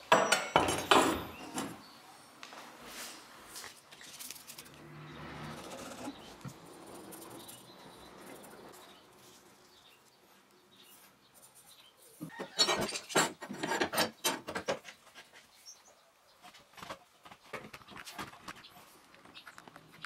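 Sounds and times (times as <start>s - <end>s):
steel bar and clamp scraping: 12.4s - 14.8s.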